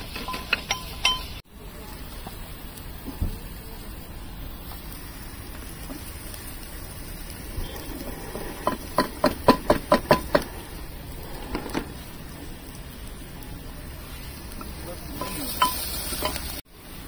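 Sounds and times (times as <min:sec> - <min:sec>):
low hiss: 0:00.0 - 0:17.0
metal utensil clinking on pot: 0:00.2 - 0:01.4, 0:15.2 - 0:16.6.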